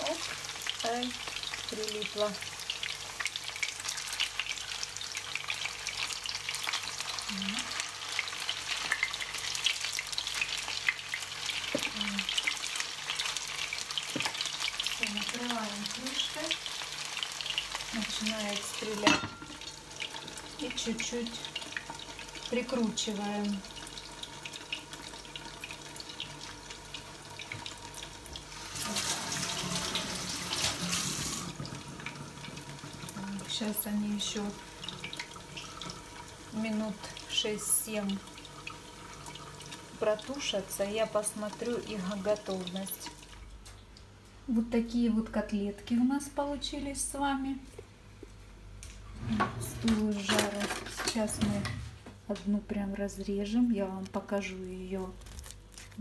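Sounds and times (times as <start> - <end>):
cutlets sizzling in oil: 0.0 - 44.2.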